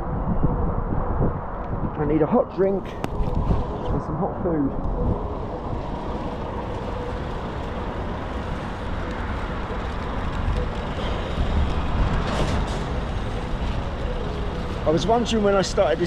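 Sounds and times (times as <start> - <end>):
road traffic rumble: 0.9 - 16.0
cars and trucks passing: 4.6 - 16.0.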